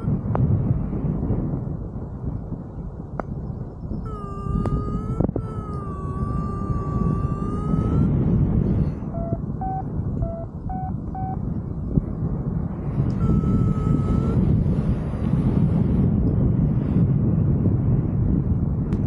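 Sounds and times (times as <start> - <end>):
wind noise on microphone: 0.0 - 19.0
variometer beeps: 9.0 - 11.4, 13.1 - 14.4.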